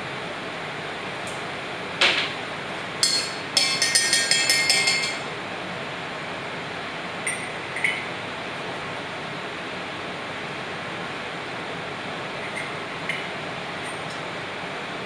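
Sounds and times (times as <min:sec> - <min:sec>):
ice cubes clinking in metal pitcher: 0:03.0 - 0:05.3.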